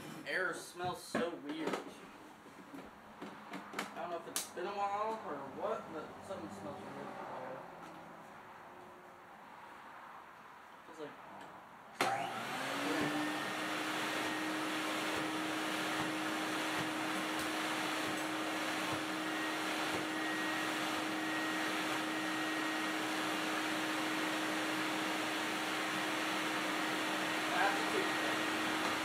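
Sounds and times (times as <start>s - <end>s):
vacuum cleaner motor humming: 12.0s - 29.0s
vacuum tool on rug: 12.0s - 29.0s.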